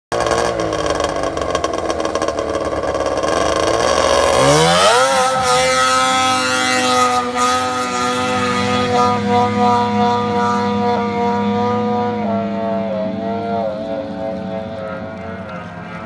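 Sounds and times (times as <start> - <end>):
snowmobile engine revving: 0.1 - 16.0.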